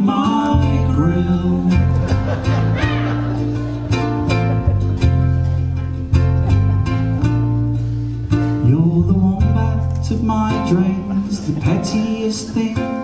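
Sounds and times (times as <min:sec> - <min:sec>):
man singing: 0:00.0 - 0:03.4, 0:08.5 - 0:13.0
ukuleles strumming: 0:00.0 - 0:13.0.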